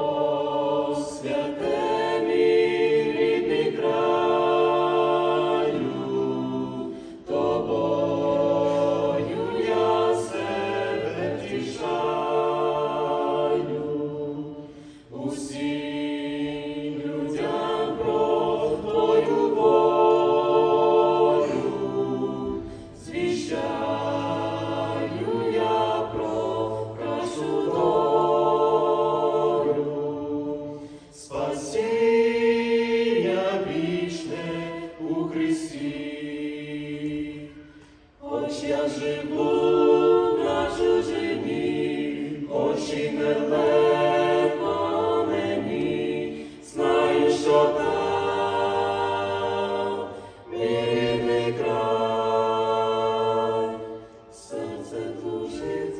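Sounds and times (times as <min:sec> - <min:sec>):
vocal quartet singing a cappella: 0:00.0 - 0:55.9.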